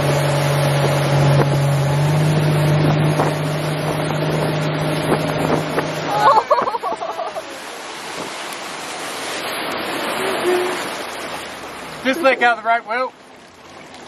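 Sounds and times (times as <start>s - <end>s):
wind on microphone: 0.0s - 7.3s
motorboat engine running: 0.0s - 14.0s
water noise: 0.0s - 14.0s.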